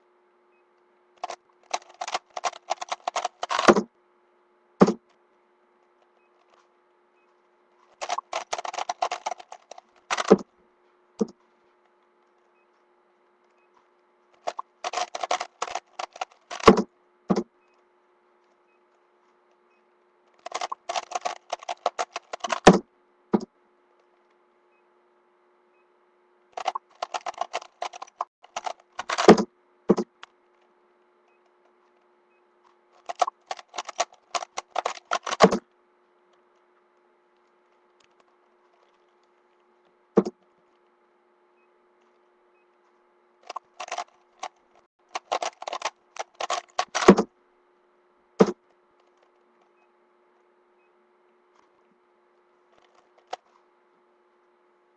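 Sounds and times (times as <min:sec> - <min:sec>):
rapid plastic puzzle cube clicking: 0:01.2 - 0:03.9, 0:07.9 - 0:10.5, 0:14.4 - 0:17.5, 0:20.3 - 0:22.8, 0:26.6 - 0:30.3, 0:33.0 - 0:35.6, 0:43.4 - 0:47.3, 0:52.8 - 0:53.5.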